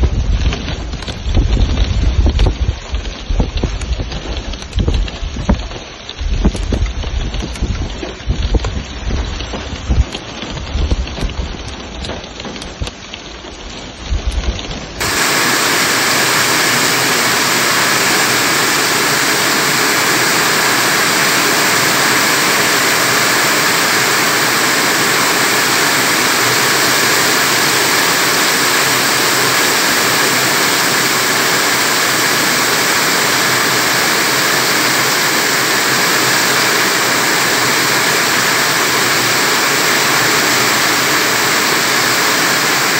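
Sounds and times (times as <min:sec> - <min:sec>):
gusty low rumble: 0:00.0 - 0:11.8
heavy rain: 0:00.0 - 0:42.9.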